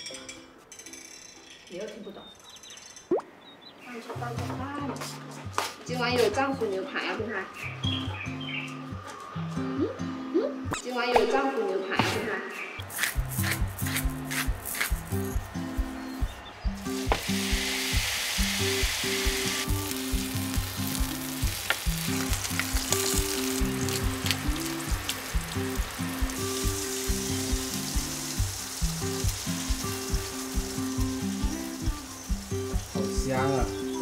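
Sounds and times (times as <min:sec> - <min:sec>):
background music with steady beat: 0:07.6 - 0:34.0
steak sizzling on griddle: 0:12.8 - 0:34.0.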